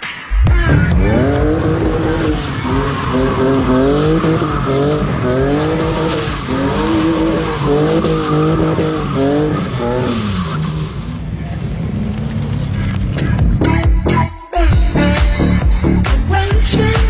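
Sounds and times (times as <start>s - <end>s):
car engines revving hard: 0.6s - 13.9s
tyres squealing sliding sideways: 2.2s - 11.2s.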